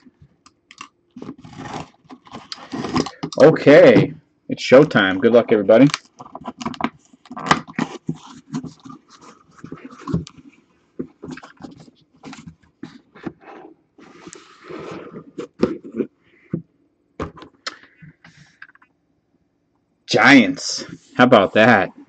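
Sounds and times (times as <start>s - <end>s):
plastic case handled: 0.7s - 4.2s, 5.8s - 16.6s, 17.2s - 17.6s
cardboard box scraping and rustling: 1.2s - 3.2s, 11.1s - 16.0s.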